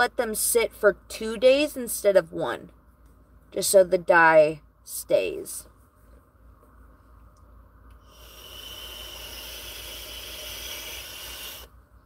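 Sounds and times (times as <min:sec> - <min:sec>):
vape draw hiss: 0:08.0 - 0:11.7.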